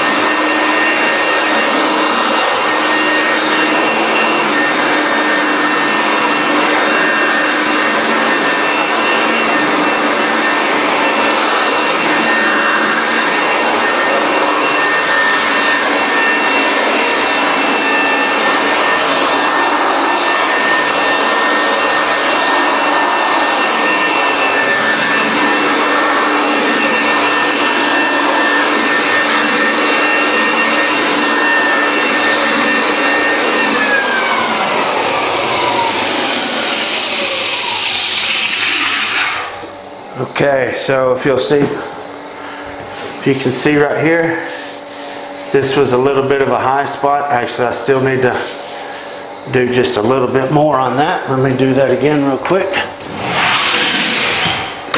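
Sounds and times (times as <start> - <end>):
sanding disc grinding wood: 0.0 - 39.6, 42.8 - 54.9
motor spinning down: 0.0 - 39.8, 52.8 - 54.9
high motor whine: 0.0 - 54.9.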